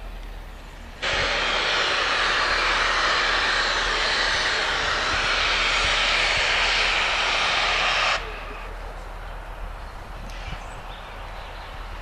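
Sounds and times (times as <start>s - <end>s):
steam hissing from safety valves: 1.0s - 9.1s.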